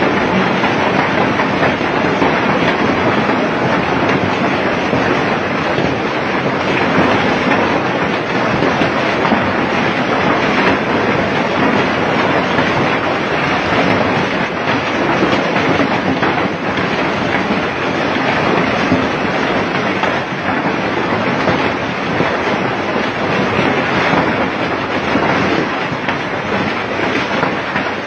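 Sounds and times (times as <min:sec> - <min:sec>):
heavy rain pouring: 0:00.0 - 0:28.0.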